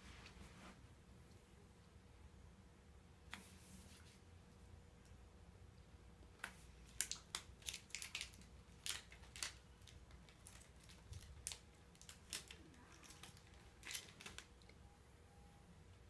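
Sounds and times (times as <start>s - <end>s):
plastic wrapper crinkling: 6.8s - 14.8s.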